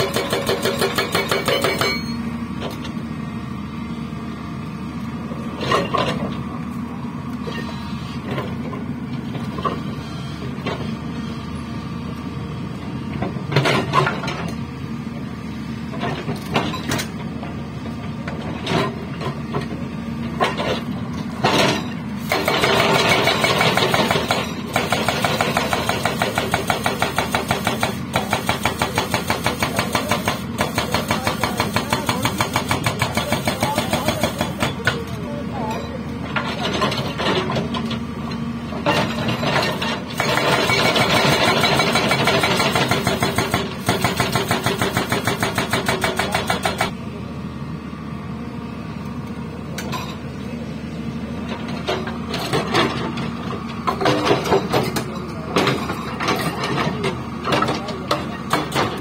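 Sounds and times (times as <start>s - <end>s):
rock breaker hammering rock: 0.0s - 2.2s, 21.5s - 35.0s, 39.2s - 47.0s
excavator diesel engine running: 0.0s - 59.0s.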